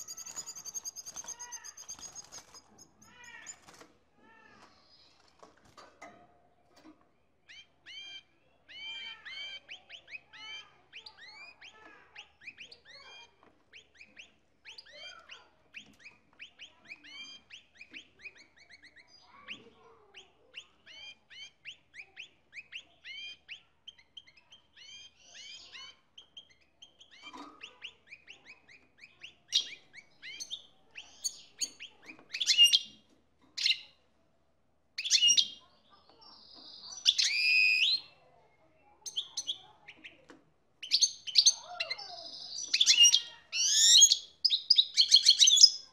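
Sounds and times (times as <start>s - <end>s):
goldfinch twittering song: 0.0s - 3.7s.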